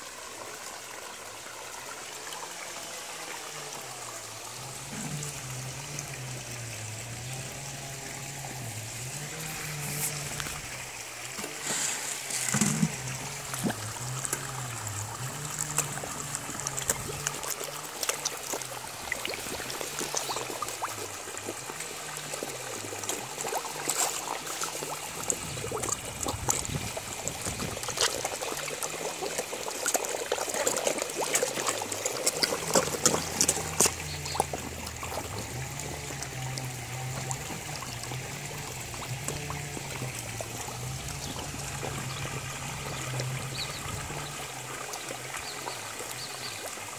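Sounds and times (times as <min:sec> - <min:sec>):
fish splashing and slurping: 0:00.0 - 0:46.9
water pouring into pond: 0:00.0 - 0:46.9.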